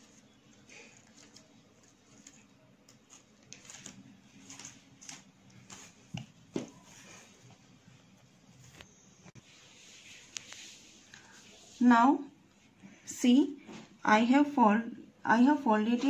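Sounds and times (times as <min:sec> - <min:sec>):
paper crinkling and rustling: 0:00.0 - 0:07.4.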